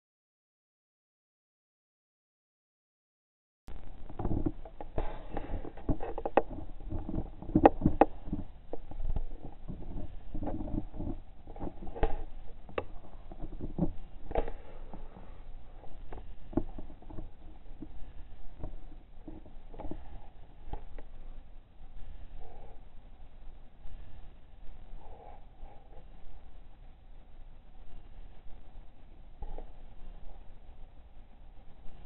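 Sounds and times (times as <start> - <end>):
dull rumble: 3.7 - 32.0.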